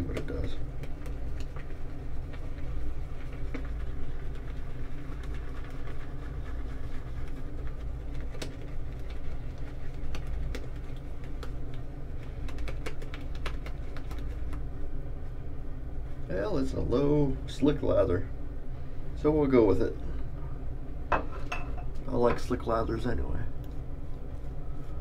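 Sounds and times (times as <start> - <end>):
shaving brush swishing lather: 0.0 - 14.6.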